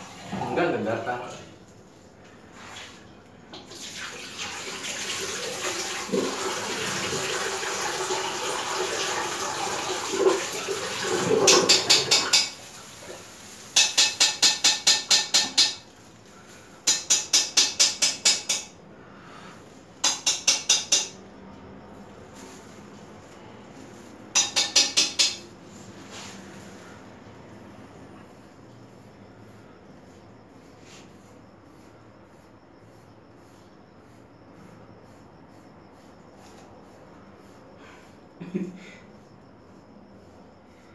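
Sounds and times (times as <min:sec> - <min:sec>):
tap water running into basin: 0:03.5 - 0:13.4.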